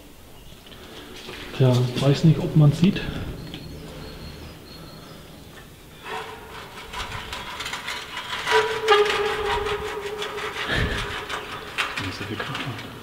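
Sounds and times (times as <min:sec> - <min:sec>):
metal hinges grinding and scraping: 0:01.1 - 0:13.0
metal door squealing: 0:06.0 - 0:12.3.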